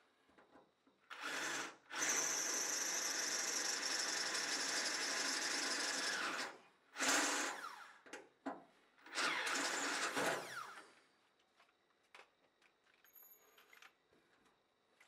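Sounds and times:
cordless drill boring into metal: 9.1 - 10.9.

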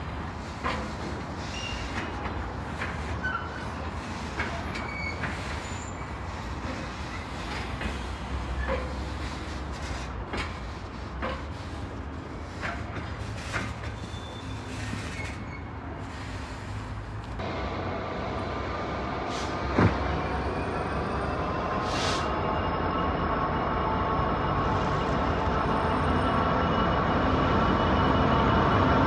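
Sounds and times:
train wheels clacking over rail joints: 0.0 - 16.9
diesel locomotive engine idling: 0.0 - 29.0.

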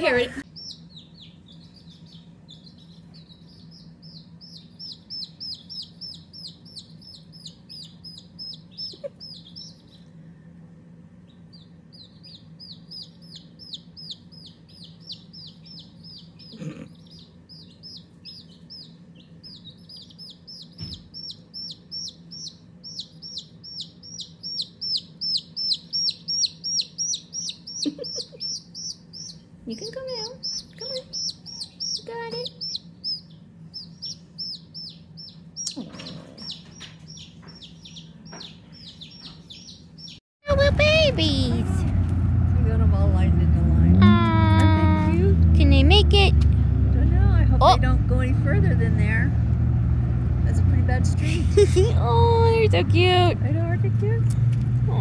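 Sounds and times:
chick peeping: 0.0 - 10.2, 11.2 - 41.2.

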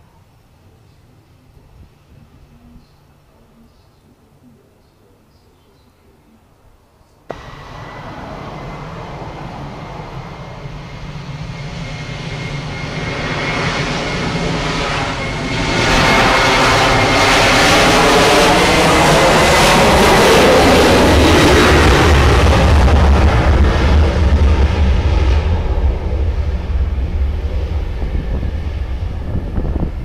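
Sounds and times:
jet engines at high power: 7.3 - 30.0.

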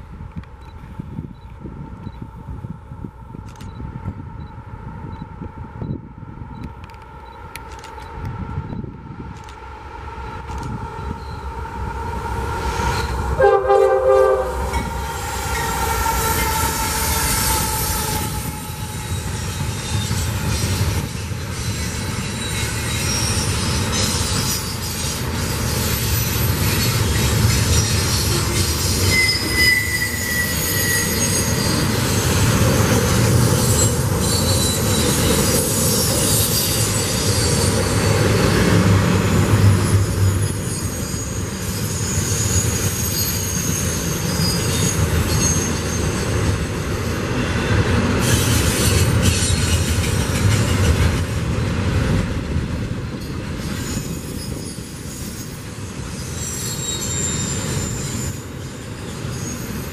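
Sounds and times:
diesel locomotives passing: 0.0 - 59.9
train cars rumbling and clattering: 0.0 - 59.9
train horn blast: 13.4 - 19.3
wheel squeal: 15.3 - 32.3, 33.5 - 38.4, 39.6 - 46.2, 53.6 - 59.9.

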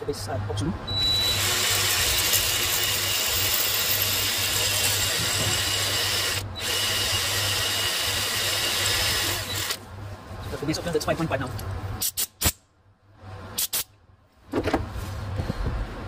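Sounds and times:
power drill drilling metal: 1.0 - 9.8.

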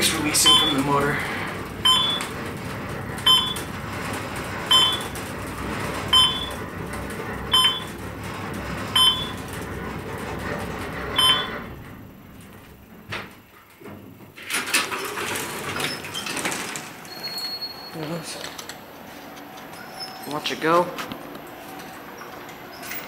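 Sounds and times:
elevator running noise: 0.0 - 23.0
short electronic beeps: 11.2 - 11.5.

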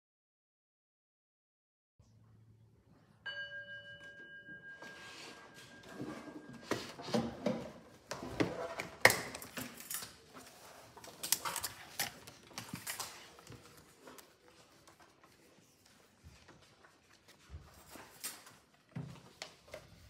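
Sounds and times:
paper rustling: 8.2 - 20.0.

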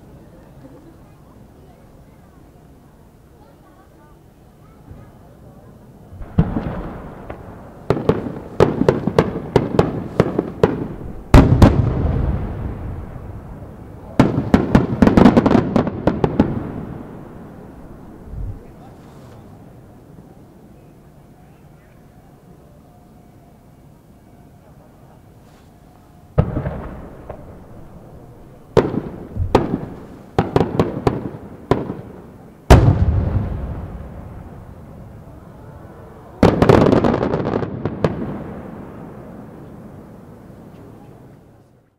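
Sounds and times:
firework booms with echoing rumble: 6.1 - 18.8, 26.3 - 35.5, 36.4 - 40.4.

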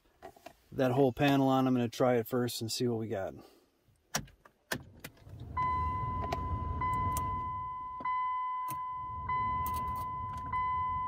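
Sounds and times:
dashboard warning chime: 5.5 - 11.0.

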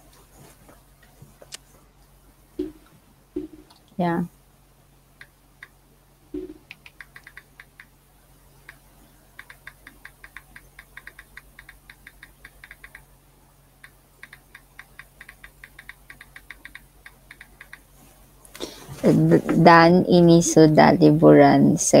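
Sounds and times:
computer keyboard typing: 6.4 - 7.9, 9.4 - 13.0, 13.8 - 17.8.

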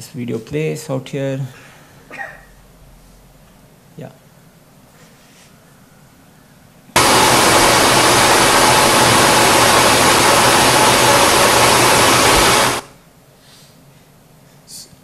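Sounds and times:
loud hiss-like noise: 7.0 - 13.0.

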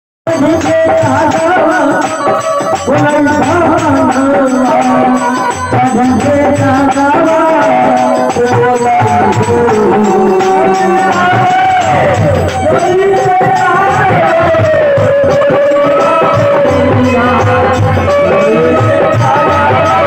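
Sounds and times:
hand drum beats: 0.3 - 20.0
man singing devotional song: 0.3 - 20.0.

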